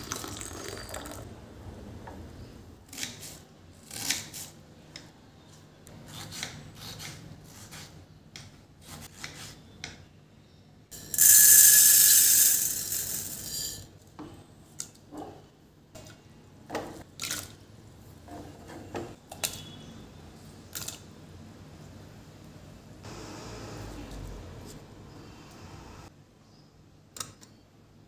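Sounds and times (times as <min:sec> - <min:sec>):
water pouring into metal pot: 0:00.0 - 0:01.2.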